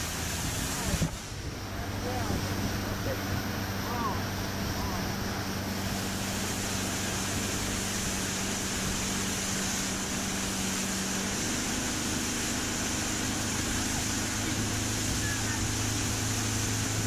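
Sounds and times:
outboard motor running: 0:00.0 - 0:17.0
wind and water rushing: 0:00.0 - 0:17.0.

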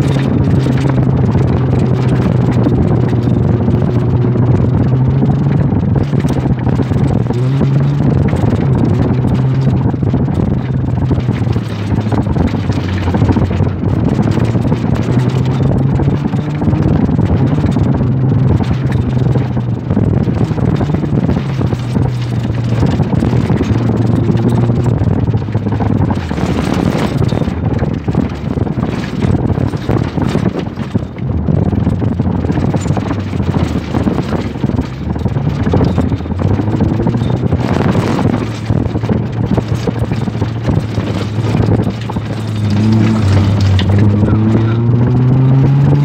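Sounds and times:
vehicle engine under load: 0:00.0 - 0:46.0.

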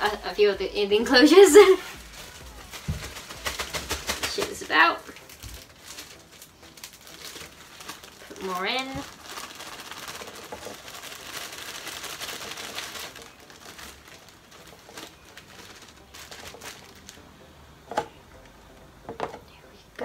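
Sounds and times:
plastic bag crinkling: 0:01.3 - 0:17.3.

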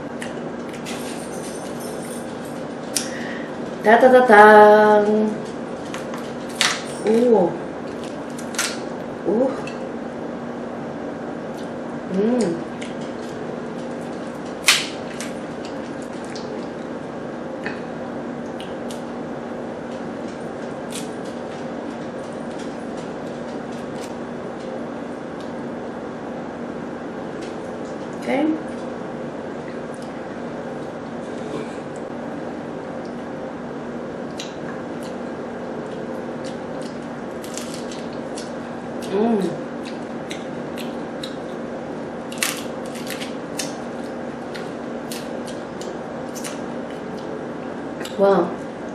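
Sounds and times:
steady low hum: 0:00.0 - 0:48.9
wet squishing and chewing: 0:15.6 - 0:16.9.

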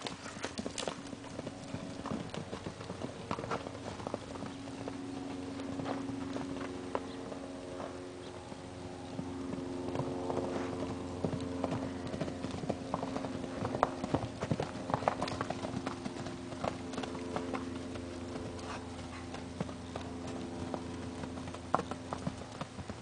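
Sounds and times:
horse hoofbeats on dirt: 0:00.0 - 0:23.0.

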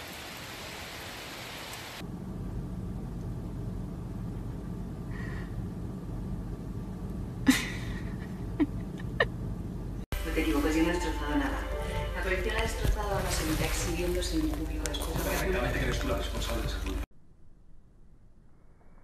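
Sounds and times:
rain hiss: 0:00.0 - 0:02.0.

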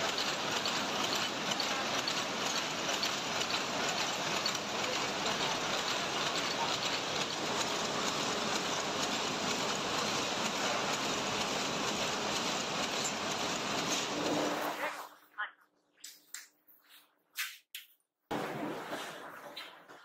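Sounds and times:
sheet metal machine clattering: 0:00.0 - 0:14.6.

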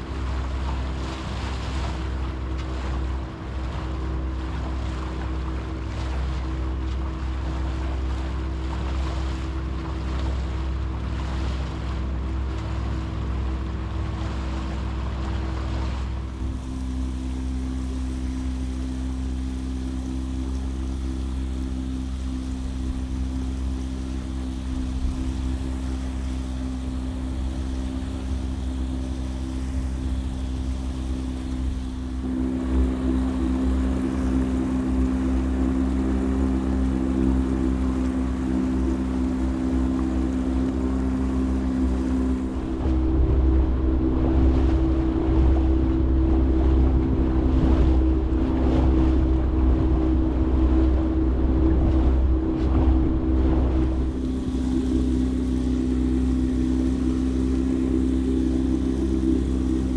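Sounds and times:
boat engine droning: 0:00.0 - 0:59.9
water rushing along hull: 0:00.0 - 0:59.9
wind on microphone: 0:13.6 - 0:59.9
rushing noise: 0:37.3 - 0:46.6.

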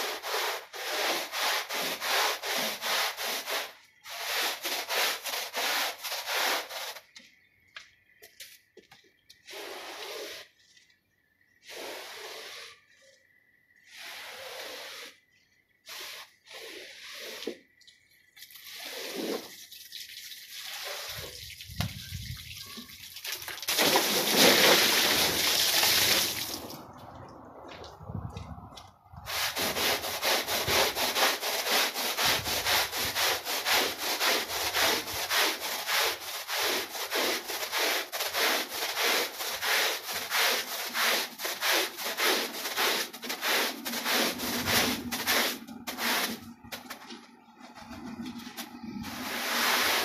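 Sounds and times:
brush scrubbing wet rug: 0:00.0 - 0:07.1, 0:09.5 - 0:10.7, 0:11.6 - 0:12.9, 0:13.9 - 0:17.6, 0:18.6 - 0:19.6, 0:20.6 - 0:21.4, 0:23.8 - 0:26.7, 0:29.3 - 0:50.0
squeegee scraping wet rug: 0:00.0 - 0:07.1, 0:09.5 - 0:10.8, 0:11.6 - 0:13.0, 0:13.8 - 0:17.6, 0:18.6 - 0:19.5, 0:20.7 - 0:21.4, 0:23.7 - 0:26.7, 0:29.3 - 0:50.0.

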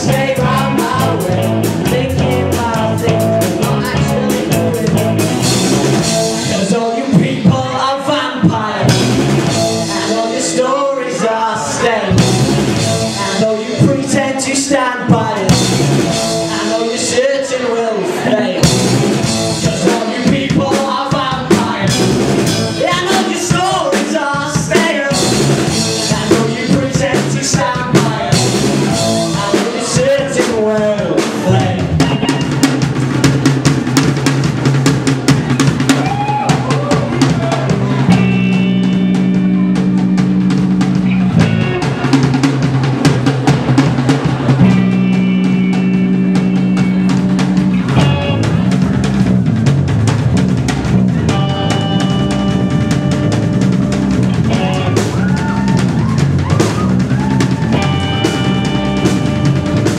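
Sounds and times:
drum kit: 0:00.0 - 0:17.3, 0:18.2 - 0:59.9
person singing: 0:00.0 - 0:32.7, 0:54.4 - 0:59.9
bass notes: 0:00.0 - 0:59.9
electric guitar: 0:31.1 - 0:59.9.

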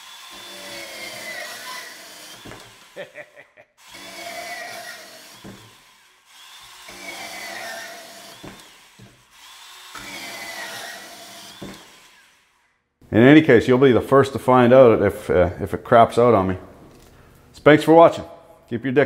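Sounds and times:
band saw cutting metal conduit: 0:00.0 - 0:03.2, 0:03.8 - 0:12.7.

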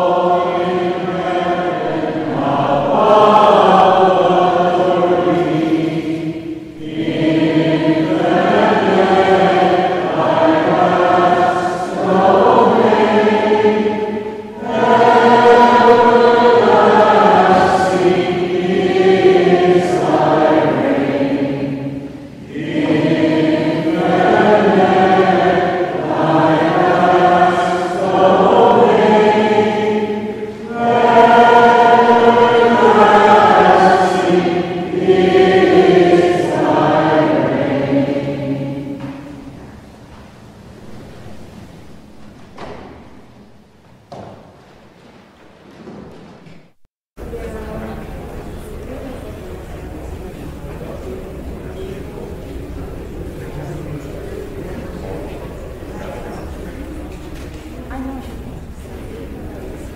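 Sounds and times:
choir singing: 0:00.0 - 0:40.0.

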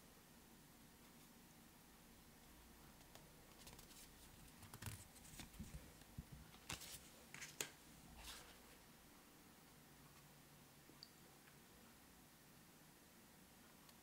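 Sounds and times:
cards rustling and ticking: 0:03.0 - 0:08.5.

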